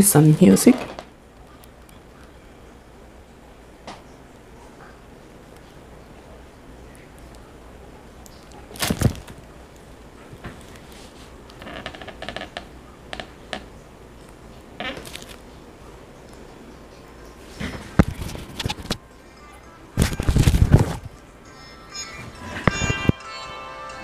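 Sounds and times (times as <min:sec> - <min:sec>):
low room hum: 0:00.0 - 0:24.0
rustling bump: 0:08.7 - 0:09.4.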